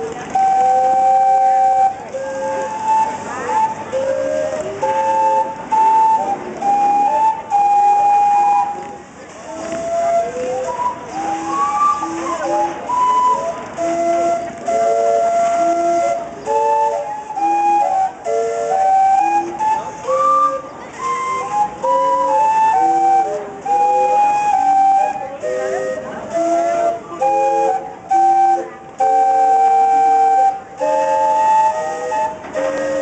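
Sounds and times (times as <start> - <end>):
steam calliope playing chords: 0.0 - 33.0.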